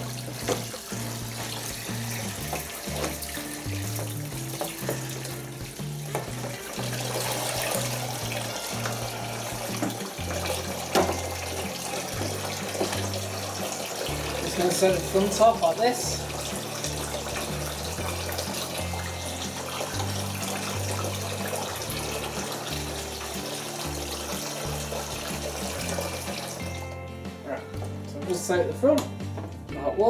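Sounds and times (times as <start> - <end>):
tap water splashing into sink: 0.0 - 27.0
background music with bass line: 0.0 - 30.0.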